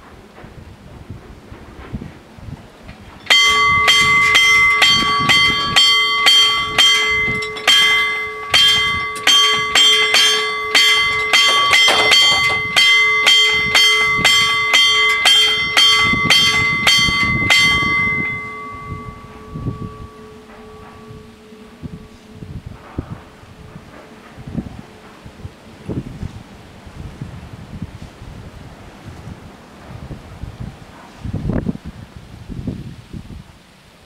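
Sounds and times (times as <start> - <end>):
level crossing warning bell: 3.2 - 25.8.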